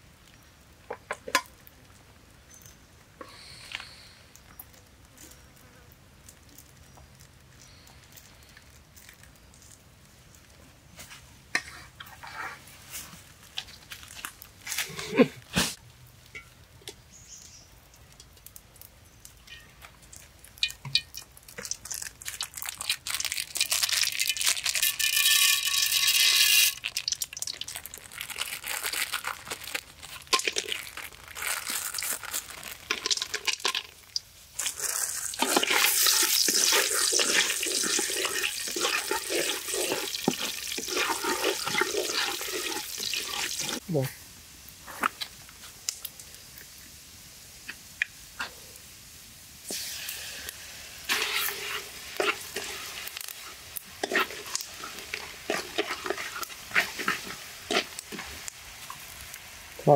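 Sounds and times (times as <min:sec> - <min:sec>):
hot oil sizzling in a pan: 0:15.6 - 0:59.9.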